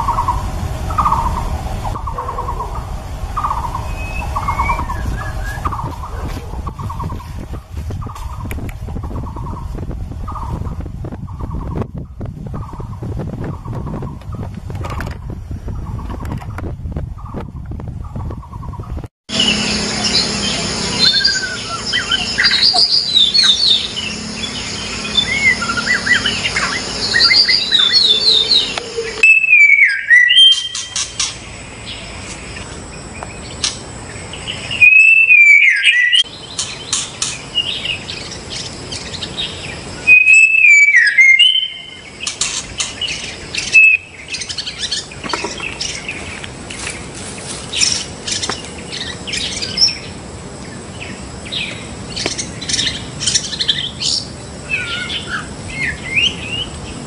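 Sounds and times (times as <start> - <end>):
bird song whistled phrases and trills: 3.4 - 7.4, 19.4 - 31.3, 34.5 - 46.2.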